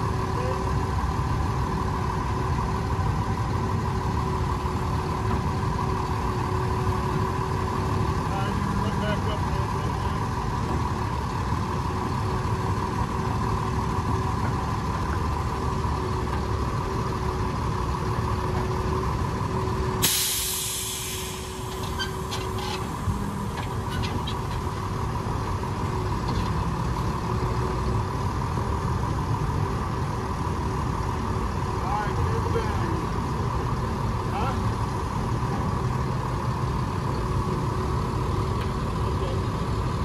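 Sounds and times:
truck engine running: 0:00.0 - 0:40.0
air brake hiss: 0:20.0 - 0:22.8.

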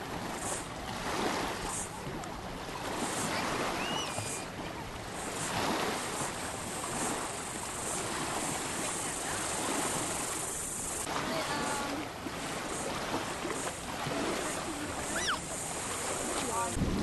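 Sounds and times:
small waves lapping: 0:00.0 - 0:17.0
water splashing and sloshing: 0:00.0 - 0:17.0
steady high hiss: 0:05.1 - 0:11.8.

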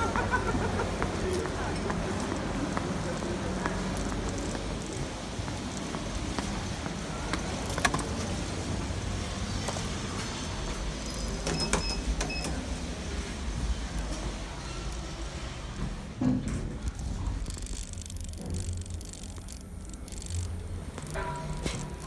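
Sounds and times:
sandal footsteps on stone tiles: 0:00.0 - 0:08.4, 0:16.7 - 0:22.0
steady low hum: 0:12.6 - 0:22.0.

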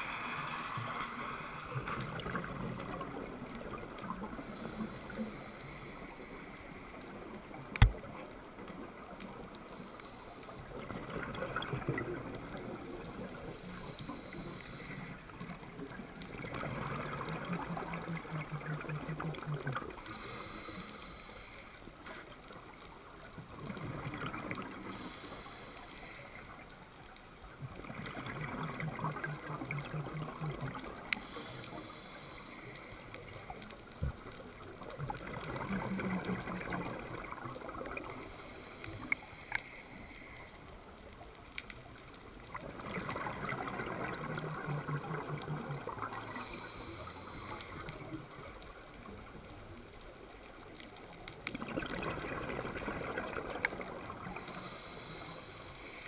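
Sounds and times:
bubbling exhaled air underwater: 0:10.6 - 0:21.1, 0:27.7 - 0:32.2, 0:33.3 - 0:39.2, 0:42.4 - 0:49.4, 0:51.4 - 0:55.9
regulator hiss: 0:20.0 - 0:22.0, 0:24.8 - 0:26.7, 0:46.2 - 0:48.2, 0:54.3 - 0:56.0.

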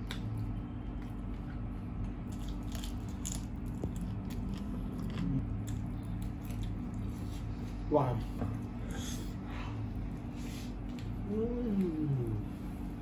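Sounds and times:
person chewing crunchy food: 0:00.0 - 0:07.7
steady low hum: 0:00.0 - 0:13.0.

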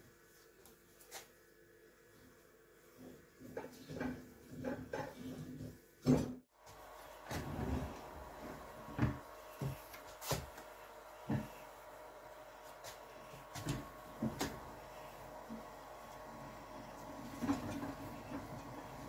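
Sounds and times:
faint rotor hum: 0:06.6 - 0:19.0.

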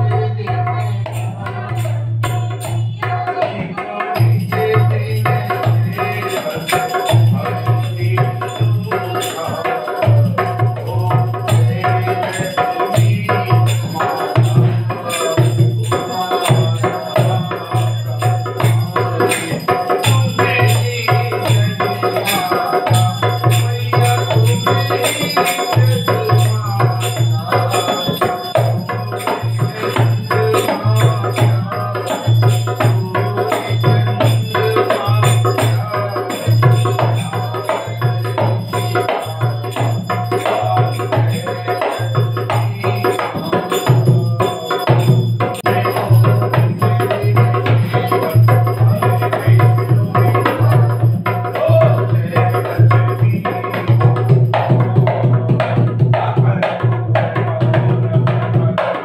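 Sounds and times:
jingling tambourine beat: 0:00.0 - 0:59.0
hand drum: 0:01.5 - 0:59.0.

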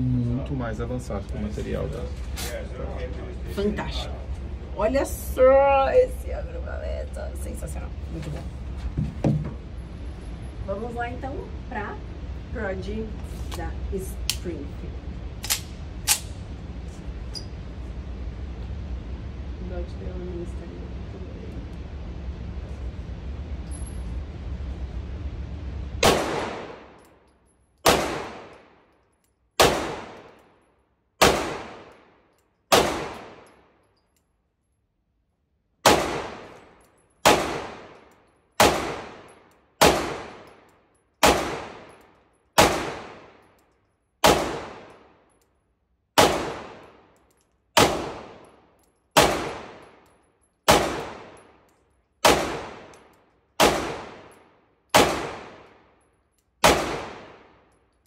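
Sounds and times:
pistol shots echoing indoors: 0:26.0 - 0:27.1, 0:27.8 - 0:30.6, 0:31.2 - 0:33.9, 0:35.8 - 0:45.4, 0:46.0 - 0:58.0.

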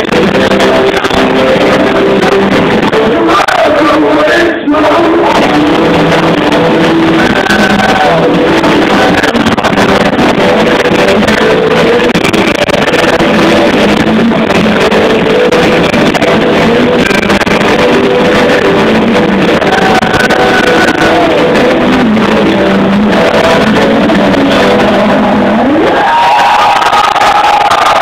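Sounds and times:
rock band playing live: 0:00.0 - 0:03.7, 0:05.1 - 0:26.2.

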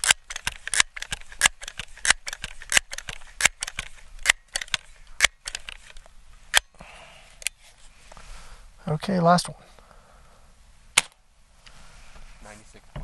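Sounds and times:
air pistol pump lever clicking: 0:00.0 - 0:06.7.

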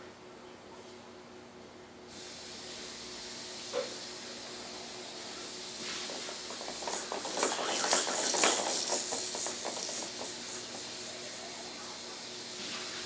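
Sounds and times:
steady hiss: 0:02.1 - 0:13.0
baby jumper seat rattling: 0:06.4 - 0:10.8.

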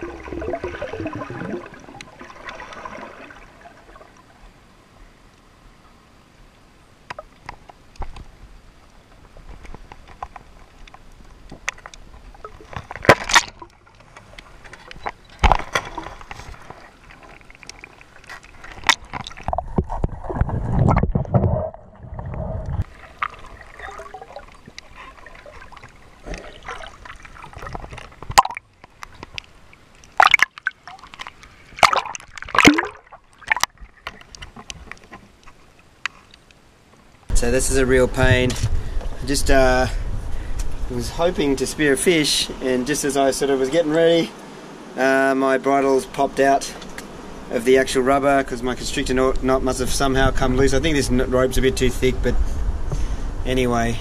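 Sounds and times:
loud splashes: 0:00.0 - 0:04.1, 0:30.2 - 0:31.1, 0:31.8 - 0:33.8
water rush: 0:00.0 - 0:05.0, 0:12.1 - 0:37.9
water sloshing underwater: 0:00.0 - 0:37.3.

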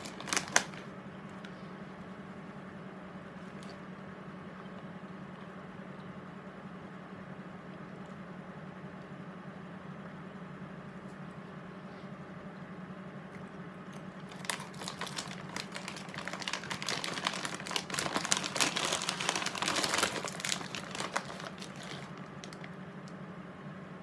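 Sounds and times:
pretzel bag crinkling: 0:00.0 - 0:01.4, 0:14.2 - 0:22.8.

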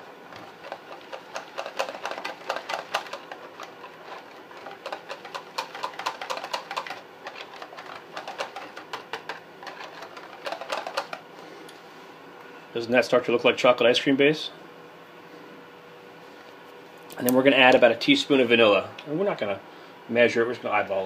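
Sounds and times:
whisk clicking against plastic container: 0:00.6 - 0:11.2.

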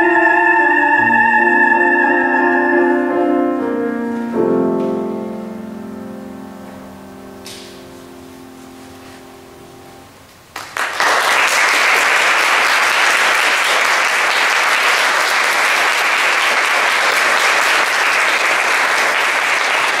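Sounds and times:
audience applauding: 0:10.5 - 0:20.0.

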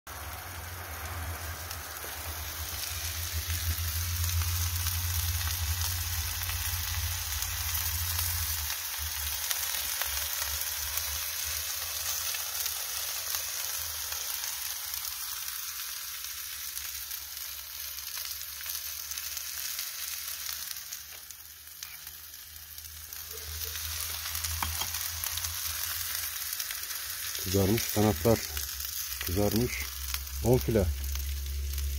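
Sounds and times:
low rumble: 0:00.1 - 0:09.1
chicken and onions sizzling: 0:00.1 - 0:31.9.

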